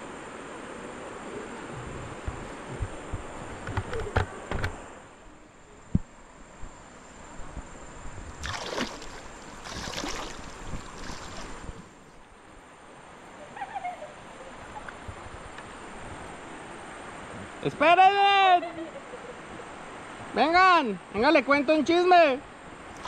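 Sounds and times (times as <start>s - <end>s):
river water splashing: 7.9s - 18.6s, 22.8s - 23.0s
loud splashes: 8.4s - 11.9s.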